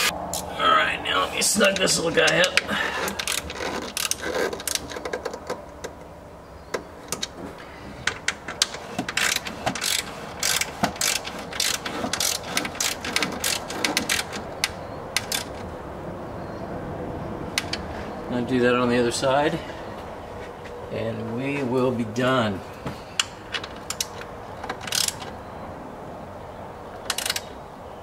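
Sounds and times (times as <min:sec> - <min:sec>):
hand ratchet clicking: 0:02.3 - 0:05.2, 0:08.1 - 0:15.6, 0:24.9 - 0:25.2.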